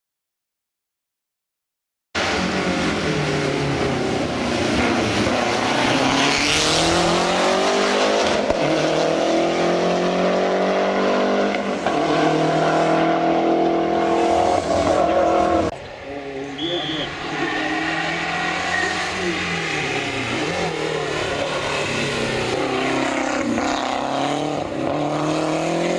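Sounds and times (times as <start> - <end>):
rally car engine accelerating: 2.2 - 15.8, 17.1 - 25.9.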